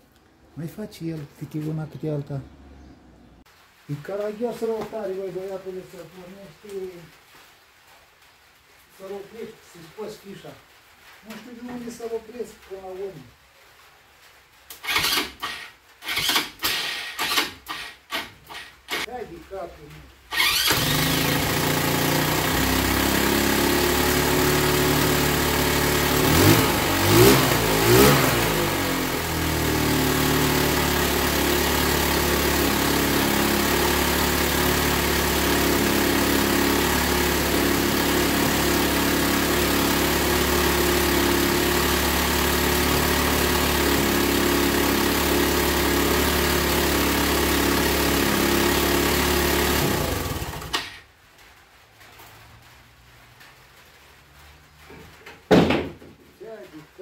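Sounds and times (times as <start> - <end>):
atv engine idling: 20.4 - 50.8.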